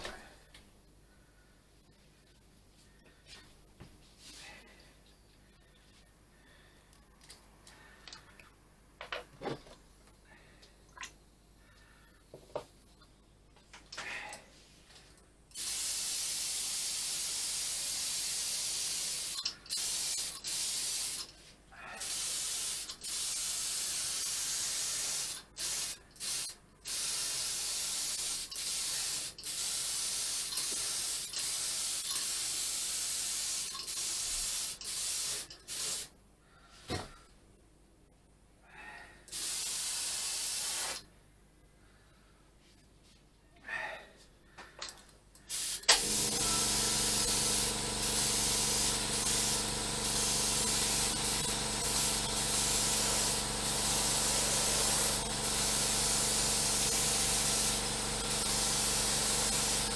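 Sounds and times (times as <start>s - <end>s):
paint spray gun hissing: 15.6s - 21.3s, 22.0s - 36.1s, 39.3s - 41.0s, 45.5s - 59.9s.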